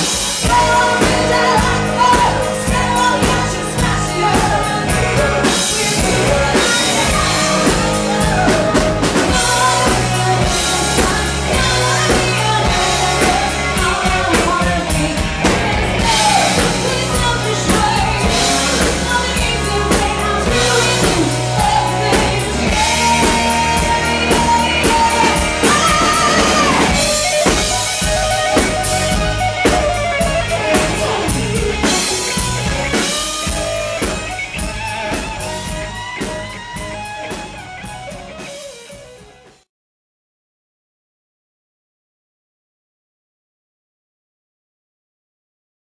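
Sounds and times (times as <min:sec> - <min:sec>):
live rock band playing: 0:00.0 - 0:39.7
woman singing into a microphone: 0:00.4 - 0:32.2.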